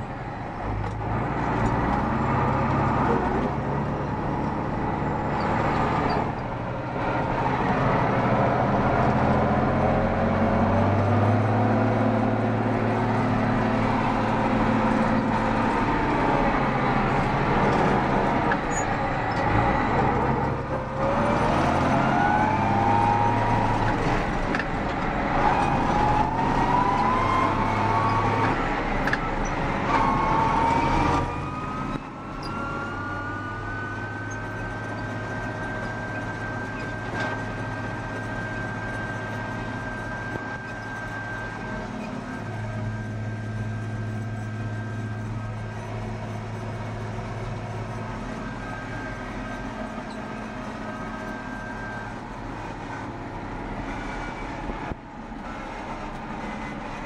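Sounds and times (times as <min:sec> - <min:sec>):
tractor diesel engine under load: 0:00.0 - 0:57.0
rising whine: 0:07.4 - 0:34.5.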